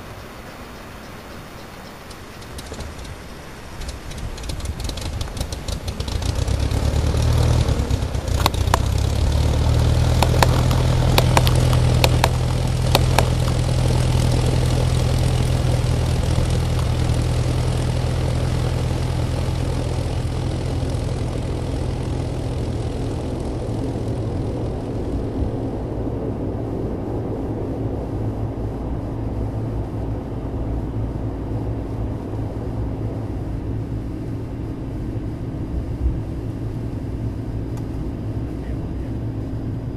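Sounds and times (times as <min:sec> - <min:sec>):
propeller aircraft engine droning: 0:00.0 - 0:39.9
sharp clicks: 0:02.0 - 0:03.2, 0:03.8 - 0:06.0, 0:08.3 - 0:09.1, 0:10.1 - 0:13.6.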